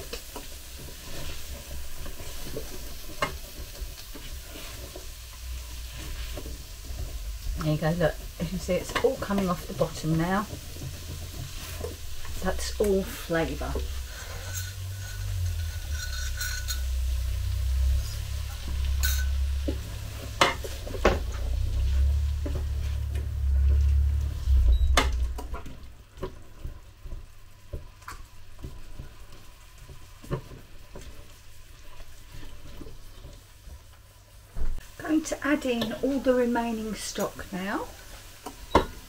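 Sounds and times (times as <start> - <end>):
food sizzling: 0.0 - 39.0
low rumble: 5.4 - 9.8, 11.9 - 26.0
tongs scraping a pot: 8.6 - 21.0.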